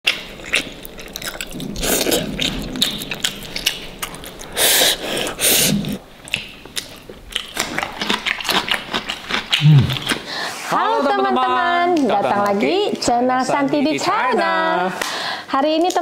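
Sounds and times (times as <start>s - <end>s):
chewing and biting food: 0.0s - 10.3s.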